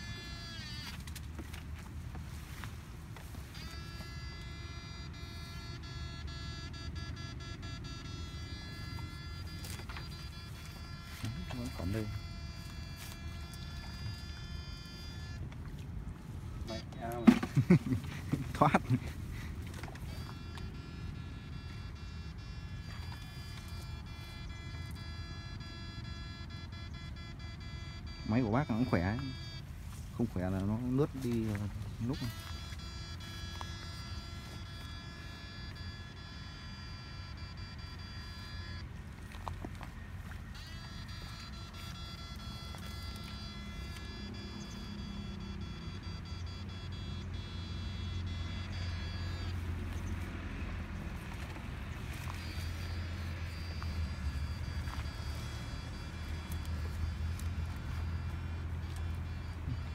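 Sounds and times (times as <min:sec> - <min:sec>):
high-pitched buzzing whine: 0:00.0 - 0:59.9
low steady hum: 0:00.0 - 0:59.9
scattered clicks: 0:30.6 - 0:59.9.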